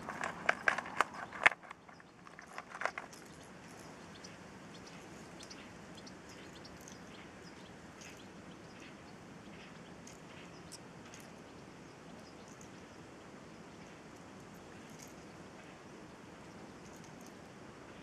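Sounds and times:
backpack rustling and clicking: 0.0s - 3.9s
faint outdoor background: 0.0s - 18.0s.

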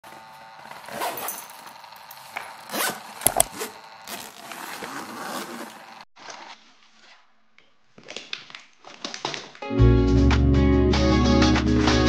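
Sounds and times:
suitcase zipper rasping: 0.6s - 6.6s.

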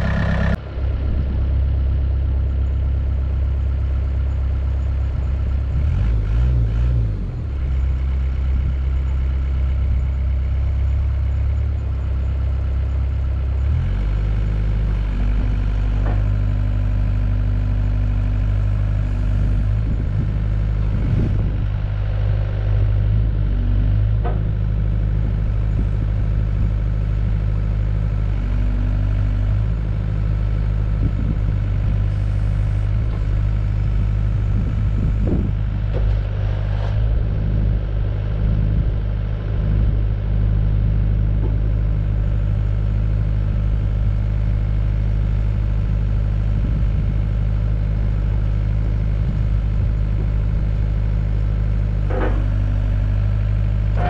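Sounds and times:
higher steady hum: 0.0s - 3.4s
excavator diesel engine running: 0.0s - 54.0s
knocks from excavator arm: 52.0s - 52.7s.

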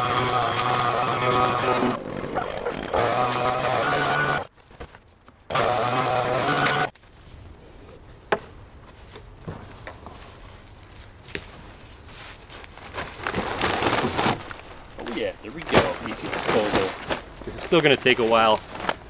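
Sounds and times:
two-stroke engine running: 0.0s - 4.5s, 5.5s - 6.9s
dry leaves rustling: 6.9s - 19.0s.

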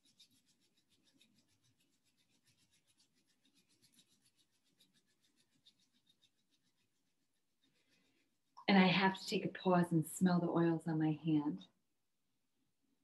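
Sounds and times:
palms rubbing together: 0.0s - 8.6s.

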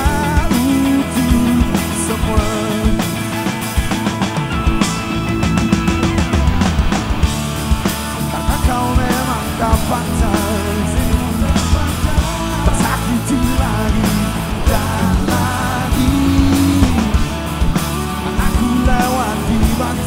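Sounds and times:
man singing lead vocal: 0.0s - 3.5s, 8.3s - 20.0s
bass guitar: 0.0s - 20.0s
drums: 0.0s - 20.0s
electric guitar: 0.0s - 20.0s
keyboards: 0.0s - 20.0s.

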